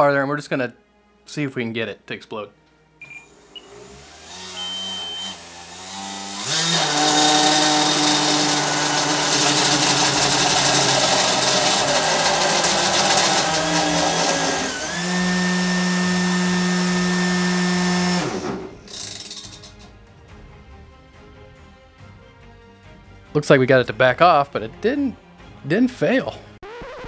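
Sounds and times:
fan motor whine: 3.0s - 19.4s.

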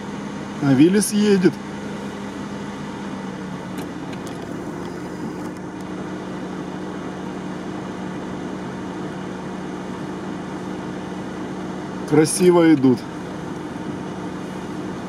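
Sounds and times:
engine idling inside cabin: 0.0s - 15.0s.

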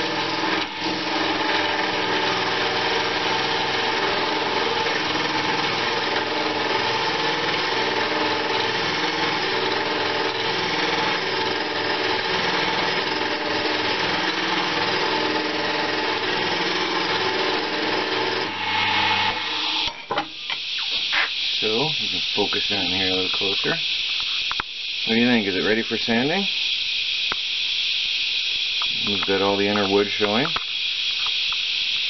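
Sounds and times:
wood lathe motor hum: 0.0s - 20.1s
chisel scraping hiss: 0.0s - 32.0s.

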